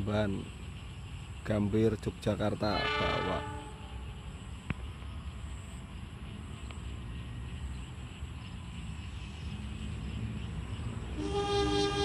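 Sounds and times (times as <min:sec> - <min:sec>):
train rumble: 0:00.0 - 0:12.0
locomotive horn: 0:02.7 - 0:03.9, 0:11.2 - 0:12.0.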